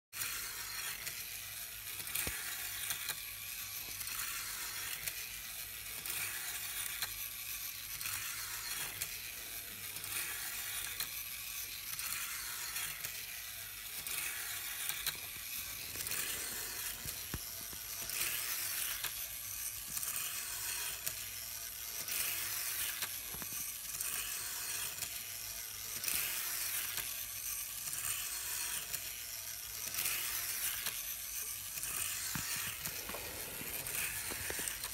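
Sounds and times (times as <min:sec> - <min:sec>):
small motor whirring: 0:00.2 - 0:34.9.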